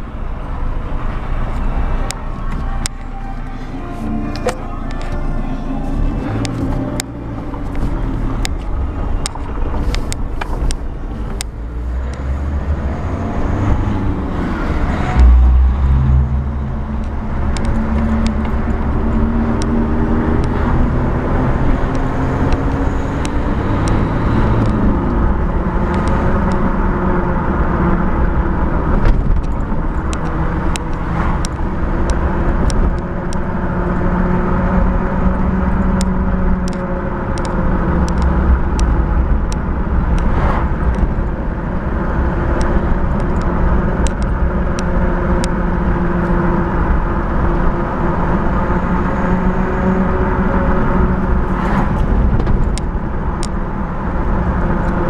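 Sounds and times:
diesel engine while driving: 0:00.0 - 0:55.0
tyre and road noise: 0:00.0 - 0:55.0.

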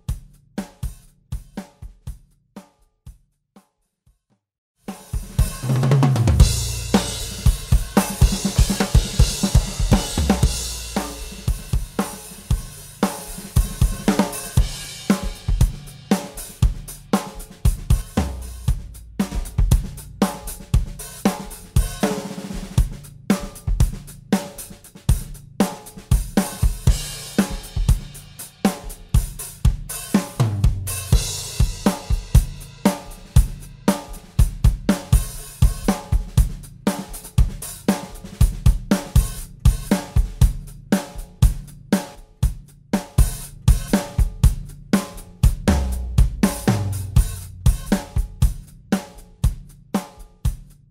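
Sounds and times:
drum kit groove: 0:00.0 - 0:03.4, 0:04.8 - 0:50.9
cymbal crash: 0:06.4 - 0:12.2.

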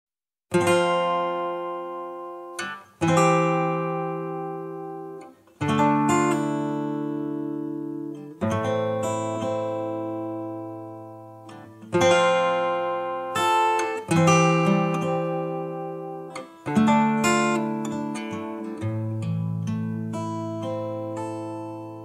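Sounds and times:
finger-picked acoustic guitar: 0:00.5 - 0:22.0.

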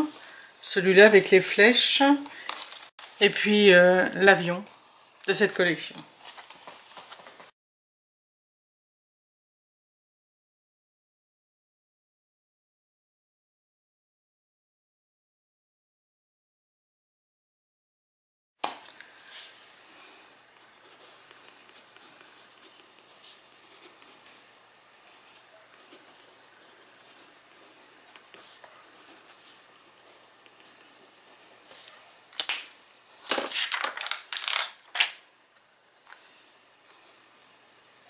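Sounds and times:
paper rustling: 0:02.4 - 0:03.2, 0:06.2 - 0:07.5, 0:25.1 - 0:35.2
pen scratching on paper: 0:20.6 - 0:24.4, 0:25.0 - 0:31.8.

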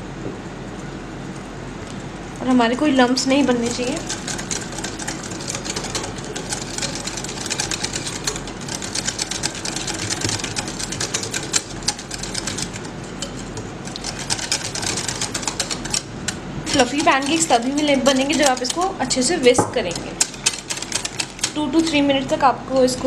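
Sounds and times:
whisk clicking against glass bowl: 0:03.5 - 0:21.9.

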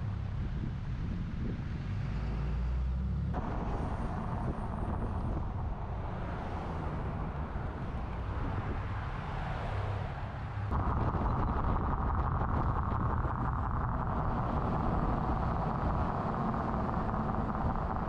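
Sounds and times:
vehicle engine and road rumble: 0:00.0 - 0:18.0
wind and tyre hiss: 0:00.0 - 0:18.0.

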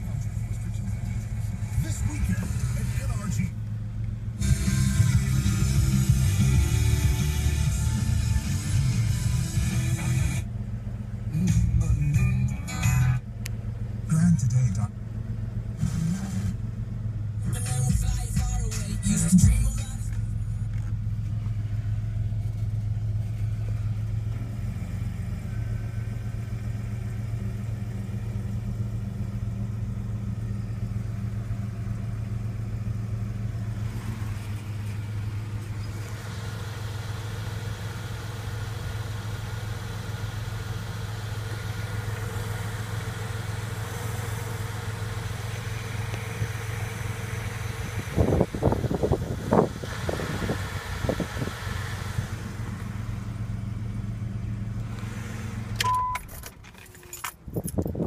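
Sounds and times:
car engine idling: 0:00.0 - 0:58.0
car door opening: 0:55.7 - 0:58.0.

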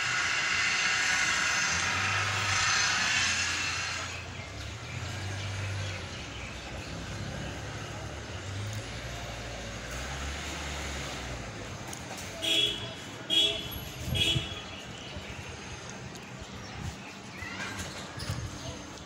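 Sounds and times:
passing vehicle hiss: 0:00.0 - 0:06.2, 0:06.9 - 0:12.4.

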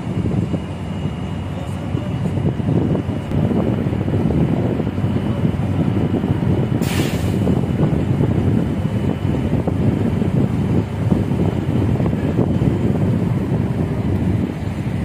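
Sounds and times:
wind buffeting microphone: 0:00.0 - 0:15.0
brief hiss: 0:06.8 - 0:07.4.

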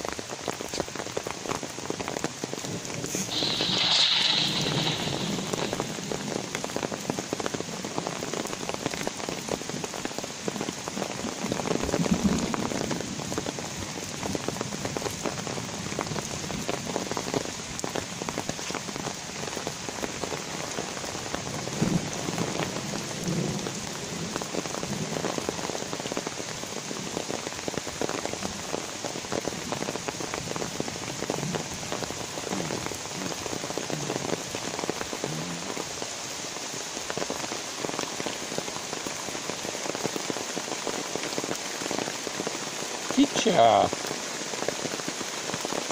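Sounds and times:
light rain falling: 0:00.0 - 0:45.9
raindrops ticking: 0:00.0 - 0:45.9.

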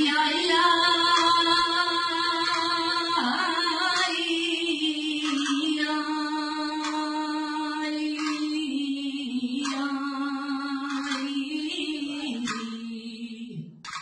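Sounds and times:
woman singing unaccompanied: 0:00.0 - 0:13.8.

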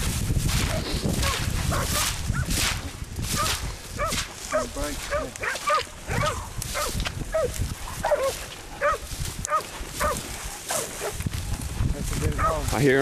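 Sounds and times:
dog barking: 0:01.2 - 0:02.5, 0:03.4 - 0:11.2, 0:12.4 - 0:12.7.

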